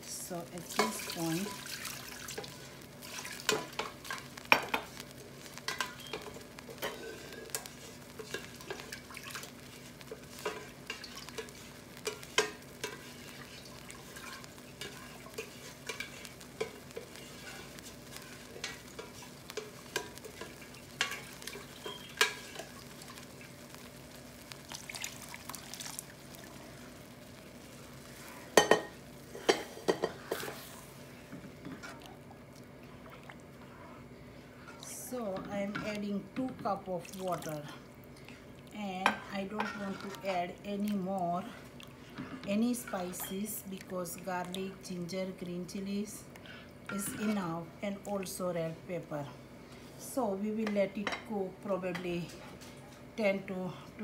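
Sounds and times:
thick stew bubbling in pot: 0.6 - 34.9.

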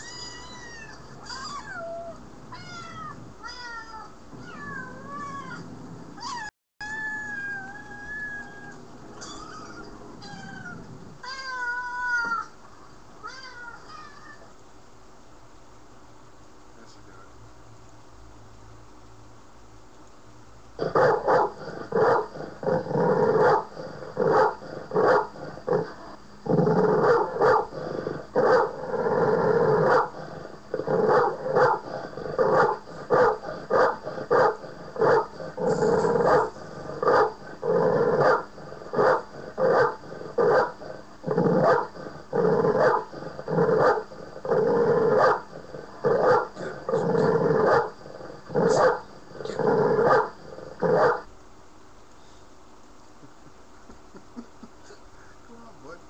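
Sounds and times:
dogs barking and growling: 20.8 - 51.3.

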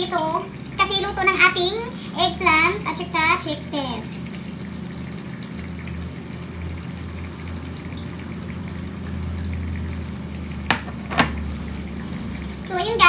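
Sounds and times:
stew bubbling in a pan: 0.0 - 13.0.

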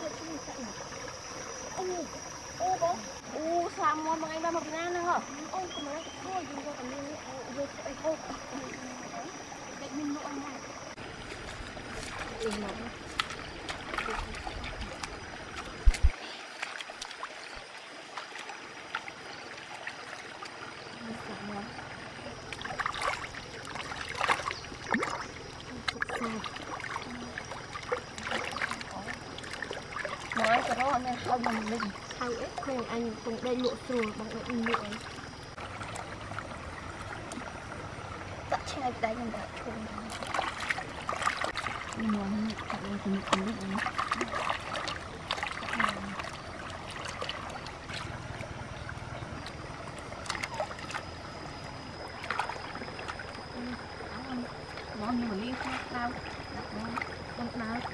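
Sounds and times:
faint high steady tone: 0.0 - 11.0, 50.4 - 57.9
stream trickling: 0.0 - 57.9
water splashing: 0.0 - 57.9.

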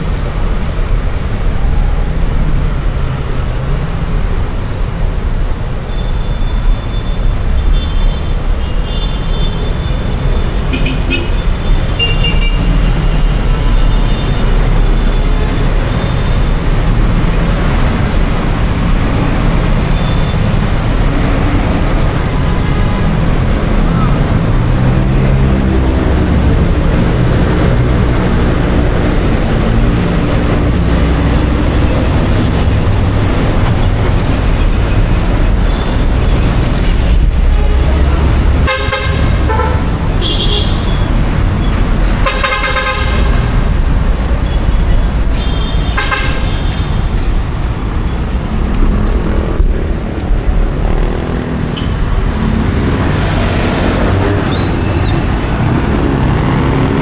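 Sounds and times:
vehicle engines rumbling: 0.0 - 57.0
car horns honking: 6.0 - 16.5, 37.5 - 41.1, 42.2 - 43.4, 45.4 - 47.0.

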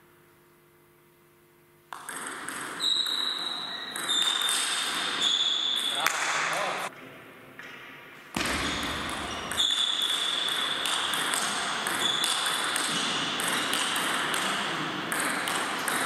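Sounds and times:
table tennis ball clicking: 1.9 - 3.3, 8.9 - 16.0.

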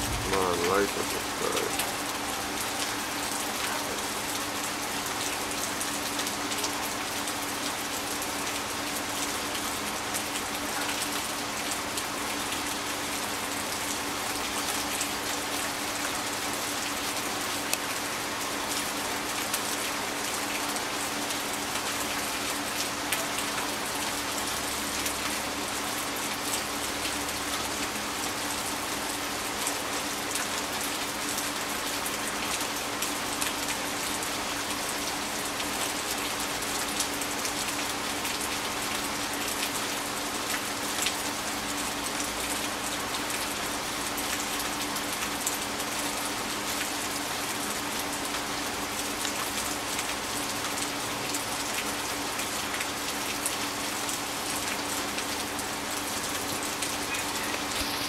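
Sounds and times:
low steady hum: 0.0 - 1.8.

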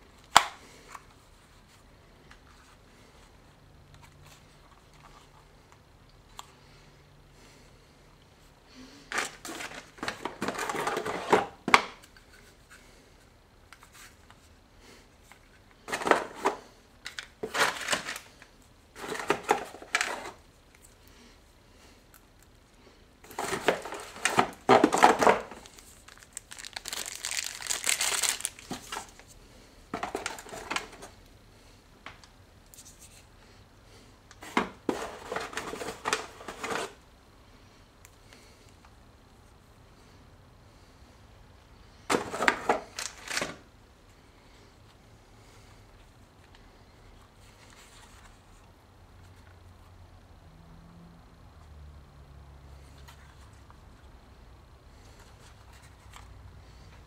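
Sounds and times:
packaging crinkling and rustling: 9.1 - 12.0, 15.8 - 20.9, 23.3 - 29.4, 30.0 - 31.2, 34.4 - 37.0, 42.1 - 43.7.

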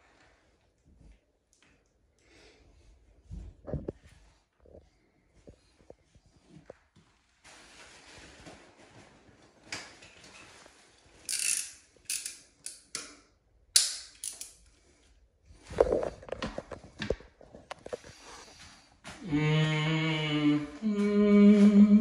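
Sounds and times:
paper rustles and scrapes: 7.2 - 11.3.

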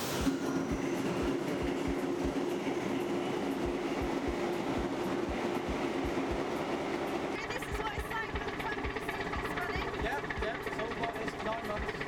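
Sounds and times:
stationary diesel engine knocking: 3.5 - 12.0.

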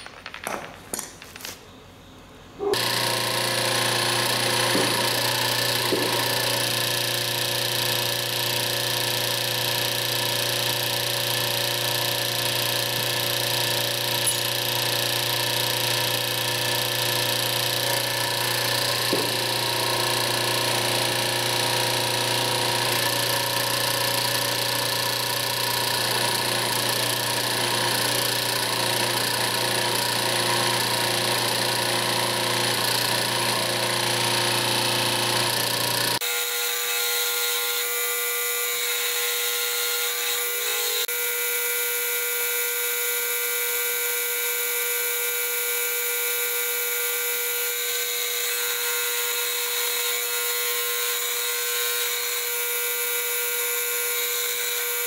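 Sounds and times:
motor-driven press running: 2.6 - 36.2.

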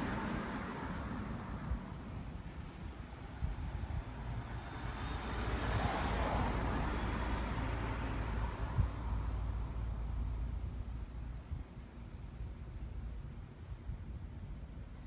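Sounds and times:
vehicle passing by: 3.9 - 10.4.

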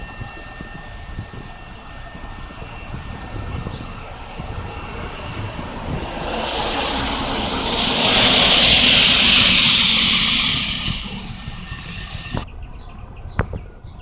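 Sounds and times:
truck tyres hissing on wet road: 4.0 - 12.4.

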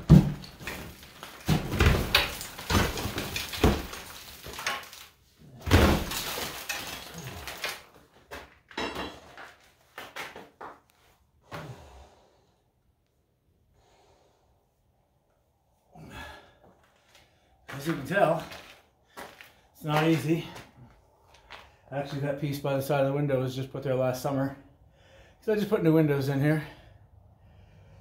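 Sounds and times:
debris knocks and clatters: 0.0 - 10.5
stucco crunching and falling: 0.0 - 10.8, 17.7 - 20.7.

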